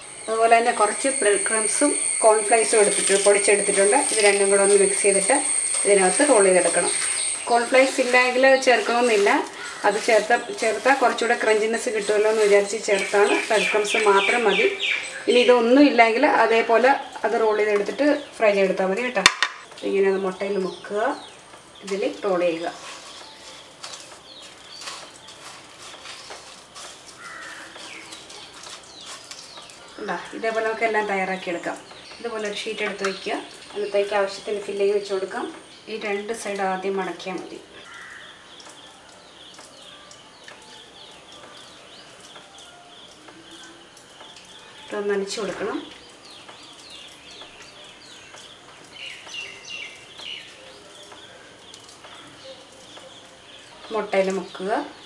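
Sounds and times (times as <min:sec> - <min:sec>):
birds chirping: 0:00.0 - 0:55.0
crumbs rustling on a plate: 0:06.7 - 0:14.4, 0:22.7 - 0:30.0.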